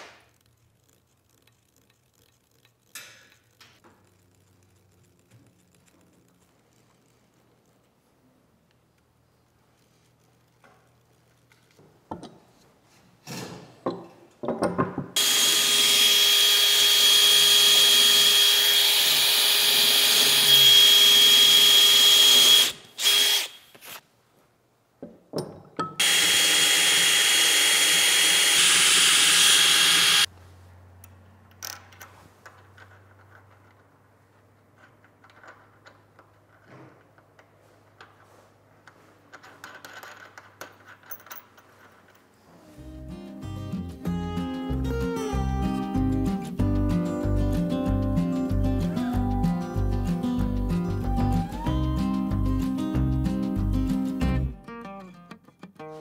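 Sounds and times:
electric drill boring wood: 0:15.2 - 0:23.6, 0:26.0 - 0:30.3
bolts and nuts clicking: 0:34.6 - 0:38.2, 0:38.8 - 0:42.3.

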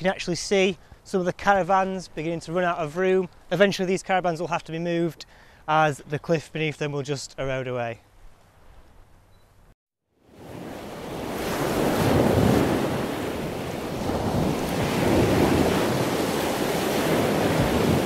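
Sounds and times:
wind: 0:00.0 - 0:18.0
sea waves washing onto shore: 0:10.3 - 0:18.0.

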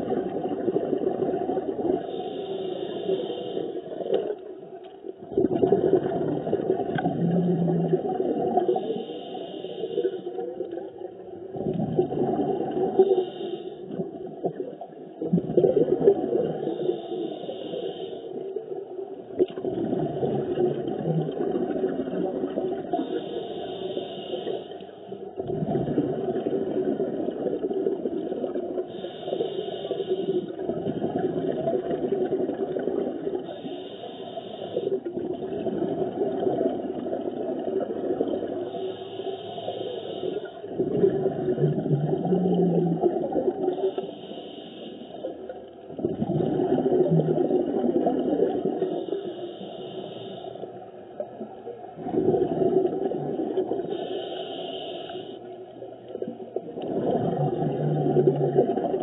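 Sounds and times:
regulator hissing inhalation: 0:02.0 - 0:04.1, 0:08.7 - 0:10.3, 0:13.0 - 0:13.9, 0:16.5 - 0:18.5, 0:23.0 - 0:25.0, 0:28.9 - 0:30.6, 0:33.4 - 0:35.1, 0:38.7 - 0:40.8, 0:43.7 - 0:45.5, 0:48.8 - 0:50.8, 0:53.8 - 0:55.6
diver exhaling bubbles: 0:05.2 - 0:08.9, 0:11.5 - 0:13.2, 0:13.9 - 0:16.7, 0:19.6 - 0:23.1, 0:25.4 - 0:29.0, 0:40.7 - 0:43.9, 0:45.9 - 0:49.1, 0:52.0 - 0:54.1, 0:56.7 - 0:59.0.

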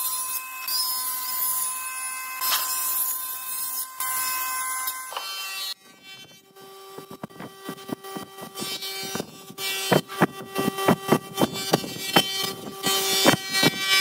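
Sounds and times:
table saw cutting wood: 0:00.0 - 0:14.0.

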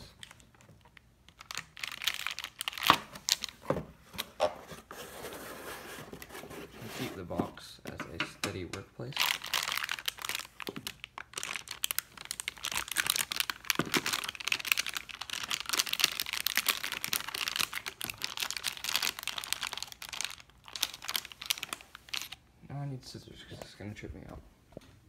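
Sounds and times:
foil bag crinkling: 0:00.0 - 0:03.6, 0:09.2 - 0:22.4.

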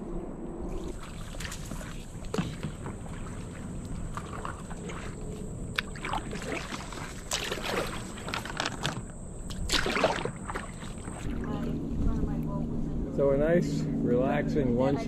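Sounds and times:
wind: 0:00.0 - 0:15.0
kayak paddle splashing: 0:00.7 - 0:11.8
rushing water: 0:05.8 - 0:09.0.

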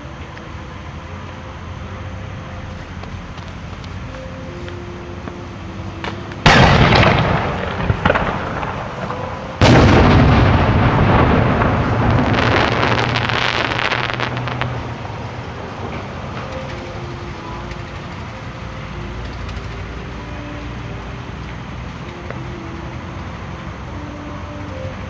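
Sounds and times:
firework crackling: 0:06.0 - 0:18.4
firework booms echoing: 0:06.5 - 0:14.6.

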